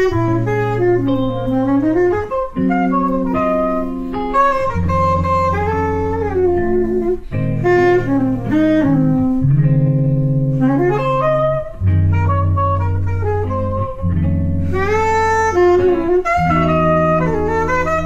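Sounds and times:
guitar chords: 0.0 - 18.0
saxophone jazz melody: 0.0 - 18.0.

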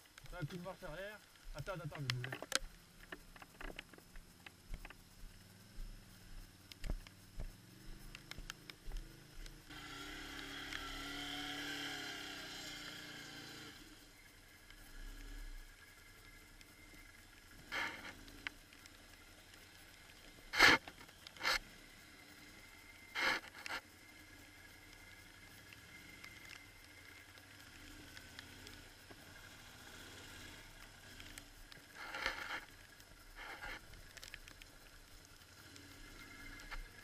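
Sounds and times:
quad bike engine: 5.3 - 33.9, 35.2 - 37.0
loud scraping noises: 20.5 - 21.6.

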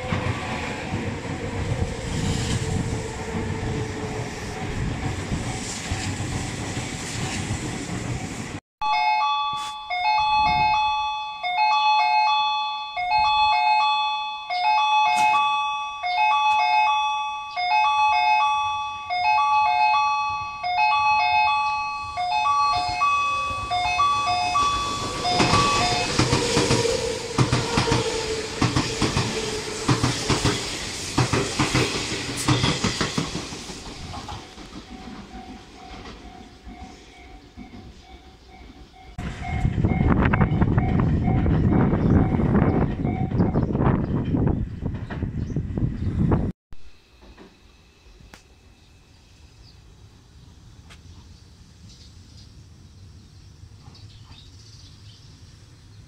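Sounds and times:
train rumbling: 0.0 - 8.6, 13.0 - 48.4
wind buffeting the microphone: 0.0 - 8.6, 39.2 - 46.5
express train passing: 0.0 - 56.0
railway crossing bell dinging: 8.8 - 27.4, 34.5 - 43.7.

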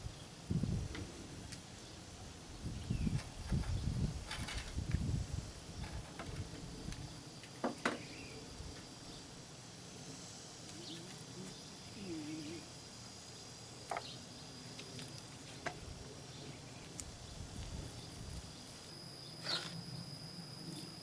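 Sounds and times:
high insect chirring: 0.0 - 21.0.

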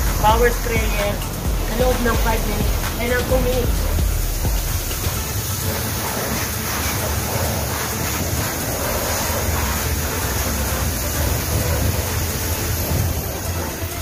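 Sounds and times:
low motor hum: 0.0 - 14.0
water spray jetting: 0.0 - 14.0.

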